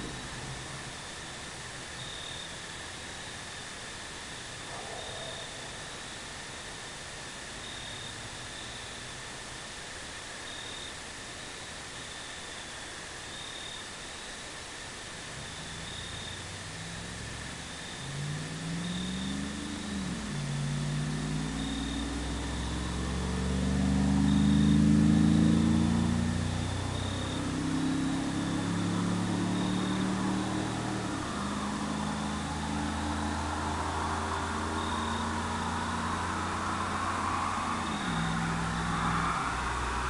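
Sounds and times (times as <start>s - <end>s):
crickets chirping: 0.0s - 40.0s
truck exhaust accelerating past: 15.4s - 40.0s.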